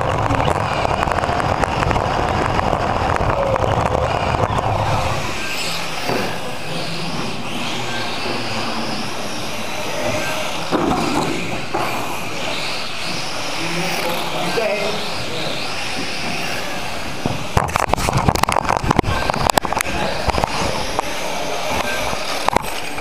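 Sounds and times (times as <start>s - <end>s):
rc car motor whirring: 0.0s - 23.0s
whine of other rc cars: 0.0s - 23.0s.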